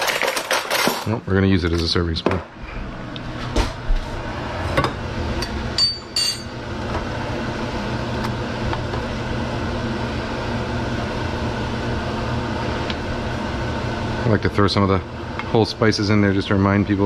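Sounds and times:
fan hum: 0:00.0 - 0:17.0
spoon clinking against cookware: 0:05.8 - 0:06.5.

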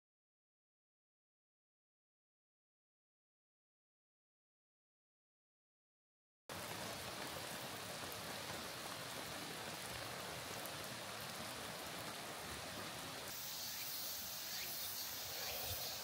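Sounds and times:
steady rain falling: 0:06.5 - 0:16.0.

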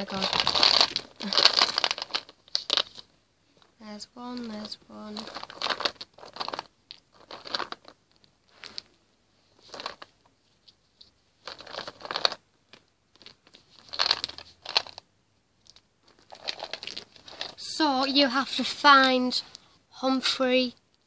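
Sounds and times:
rummaging through plastic toys: 0:00.0 - 0:15.0, 0:15.6 - 0:17.8.

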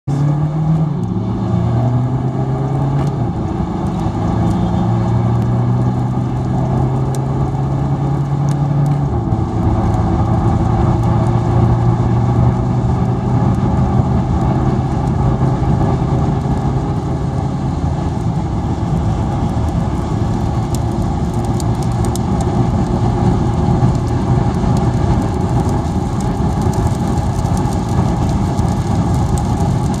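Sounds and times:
car engine hum: 0:00.0 - 0:30.0.

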